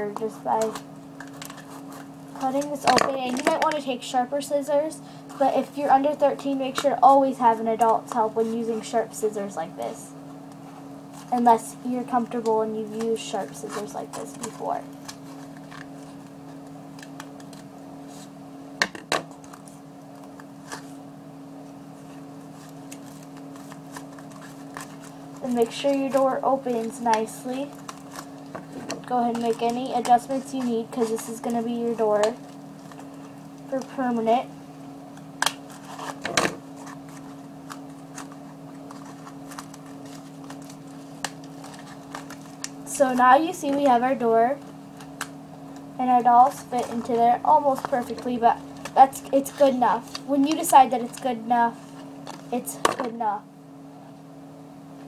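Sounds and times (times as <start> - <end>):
steady low hum: 0.0 - 55.0
scissors and cardboard rustling: 0.1 - 3.8, 11.2 - 16.0, 22.6 - 33.1, 35.7 - 44.0, 46.4 - 51.4
cardboard crinkle: 29.1 - 33.2, 35.6 - 44.0.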